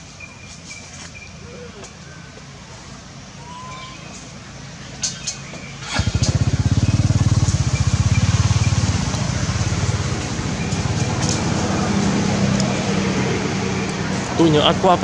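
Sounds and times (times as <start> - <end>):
small engine puttering: 5.7 - 11.7.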